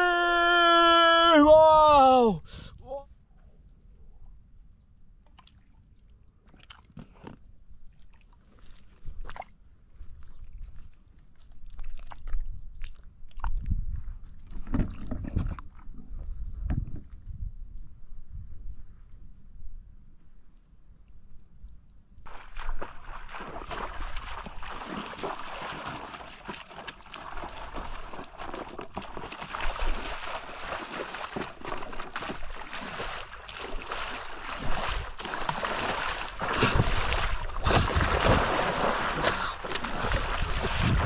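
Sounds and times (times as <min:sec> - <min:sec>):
water splashing from wading: 0:22.3 - 0:41.0.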